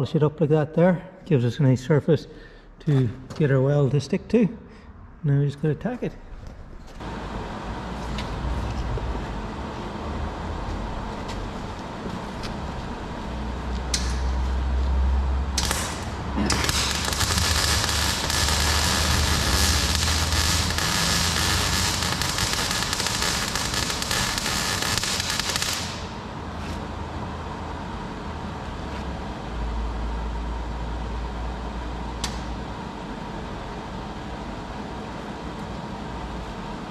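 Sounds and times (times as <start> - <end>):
low hum: 7.0 - 26.5
welding arc crackling: 15.5 - 26.3.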